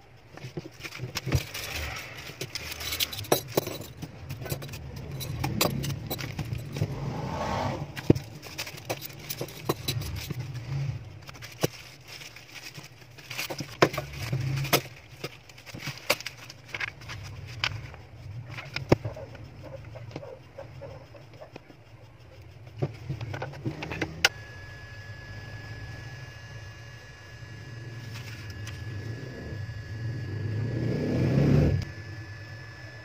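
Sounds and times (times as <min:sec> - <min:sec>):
sharp clicks and knocks: 0:00.0 - 0:06.9, 0:08.0 - 0:21.9
plastic bags rustling: 0:00.4 - 0:06.9, 0:07.9 - 0:17.9
metal nozzles clinking: 0:00.4 - 0:07.0, 0:08.0 - 0:19.0
paper sheets handled: 0:11.2 - 0:17.9.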